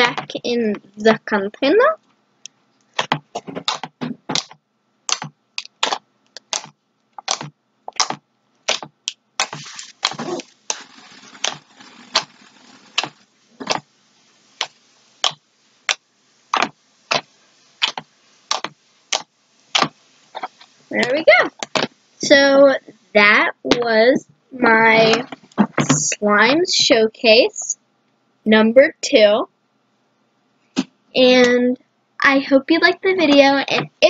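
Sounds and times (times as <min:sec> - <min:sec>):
slime squished by hand: 0:05.1 - 0:13.8.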